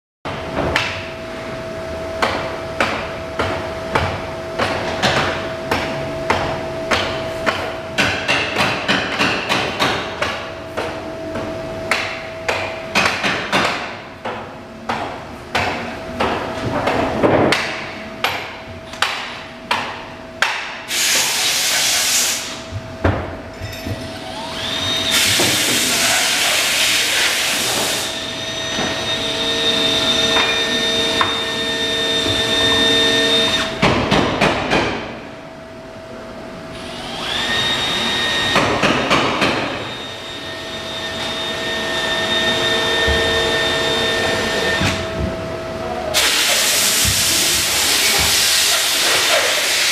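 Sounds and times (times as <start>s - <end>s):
machine hum: 0.3s - 49.8s.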